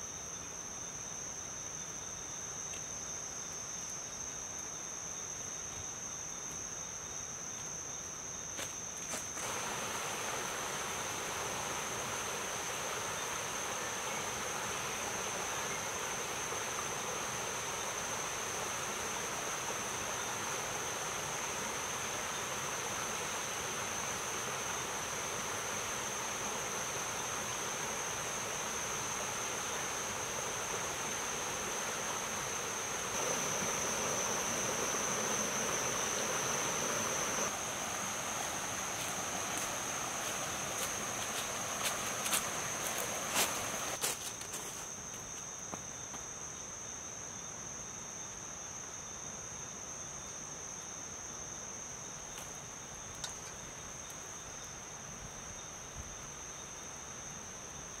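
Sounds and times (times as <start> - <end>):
high insect trill: 0.0 - 58.0
steady broad hiss: 8.4 - 45.4.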